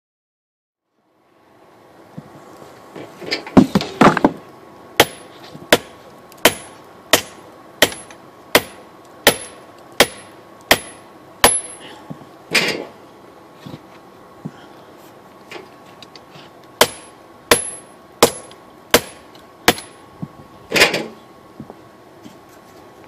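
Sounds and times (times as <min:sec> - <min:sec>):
hammer striking steel on anvil: 0:05.0 - 0:11.8, 0:16.8 - 0:20.0.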